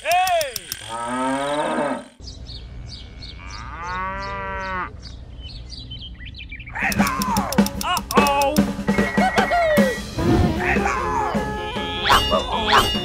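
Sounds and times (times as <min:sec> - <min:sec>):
birds chirping: 0:00.0 - 0:13.0
cow mooing: 0:00.8 - 0:02.2, 0:02.8 - 0:04.9, 0:10.2 - 0:13.0
music with drum hits: 0:07.0 - 0:13.0.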